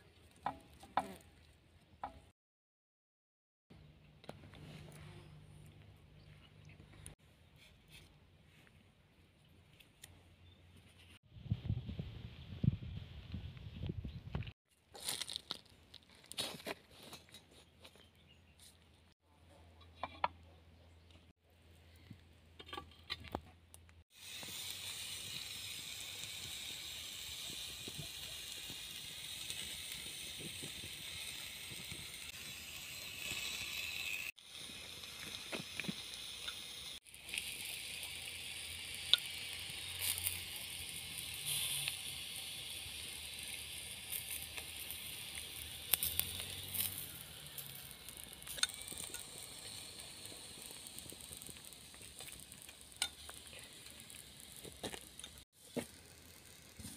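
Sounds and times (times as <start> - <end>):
potatoes sizzling in pan: 15.0 - 15.6, 24.1 - 56.9.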